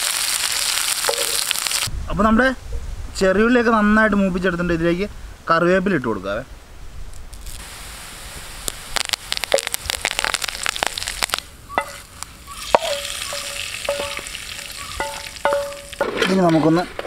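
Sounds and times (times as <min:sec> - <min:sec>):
oil sizzling with crackling pops: 0:00.0 - 0:01.9, 0:07.1 - 0:16.7
hiss of hot oil poured: 0:07.4 - 0:11.4
ringing metallic clinks: 0:12.8 - 0:16.0.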